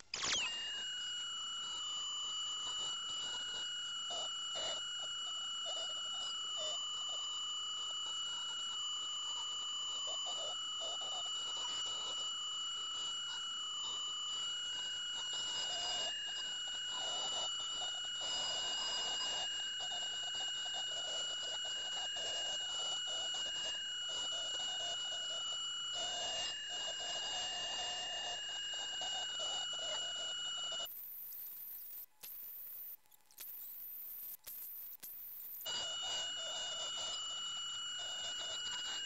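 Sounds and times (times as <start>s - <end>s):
ultrasonic dental scaler whine: 0.0s - 39.0s
faint scratchy crackles: 30.8s - 37.4s.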